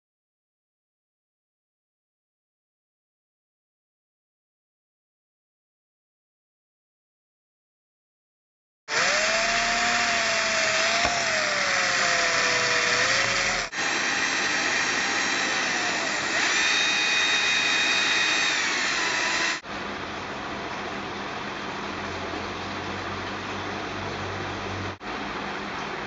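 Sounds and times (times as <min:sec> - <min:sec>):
drill wire brush grinding rust: 0:08.9 - 0:19.6.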